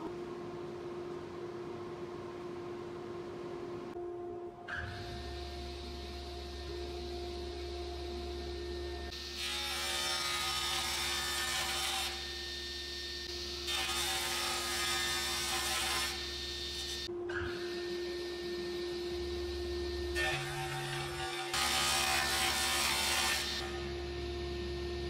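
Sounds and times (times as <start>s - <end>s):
panel saw humming: 4.9s - 25.0s
saw blade cutting wood: 20.2s - 23.8s.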